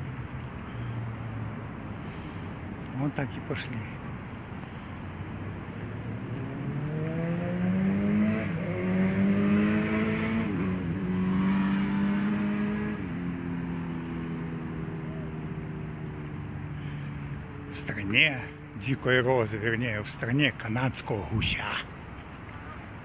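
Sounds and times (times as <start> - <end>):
vehicle engine accelerating: 5.6 - 18.8.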